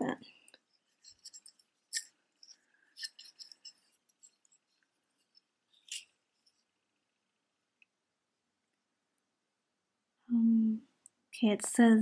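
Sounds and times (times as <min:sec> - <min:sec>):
small metal jewelry clinking: 0:00.8 - 0:04.6.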